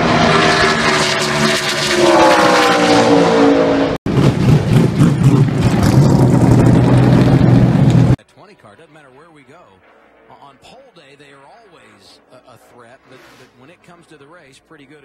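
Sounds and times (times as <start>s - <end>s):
race car engine passing at speed: 0.0s - 8.2s.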